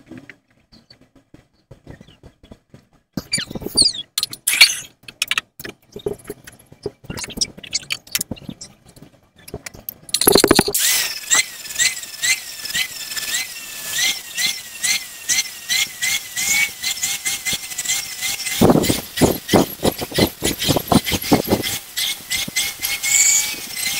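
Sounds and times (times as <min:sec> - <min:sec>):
rough evenly spaced strokes: 0:03.2 - 0:23.9
angle grinder grinding metal: 0:10.1 - 0:23.9.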